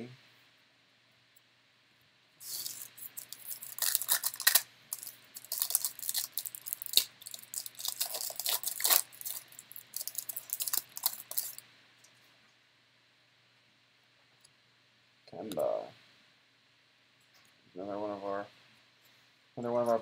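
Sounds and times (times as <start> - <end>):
foil wrapper crackling and ripping: 2.4 - 11.6.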